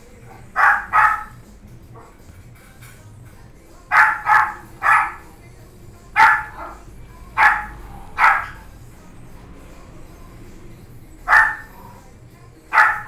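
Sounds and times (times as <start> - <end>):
puppy yapping: 0.2 - 2.2, 3.9 - 5.4, 6.1 - 8.7, 11.2 - 12.0, 12.7 - 13.0.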